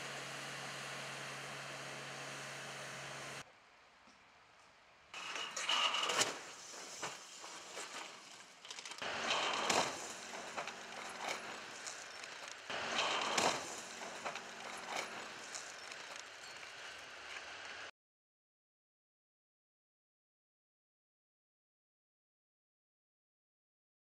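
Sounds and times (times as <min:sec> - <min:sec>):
car crashing into barrier: 0:09.0 - 0:11.6.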